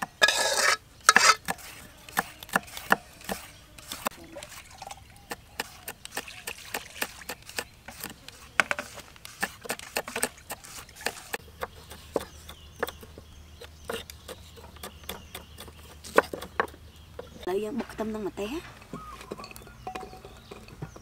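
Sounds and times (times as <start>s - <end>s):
knives chopping on wooden board: 1.1s - 4.2s, 13.9s - 16.8s.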